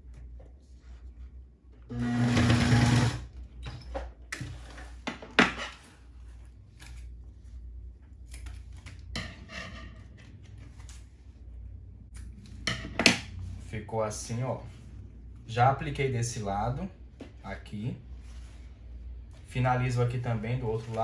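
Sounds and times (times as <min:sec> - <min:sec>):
sewing machine stitching: 0:01.9 - 0:03.2.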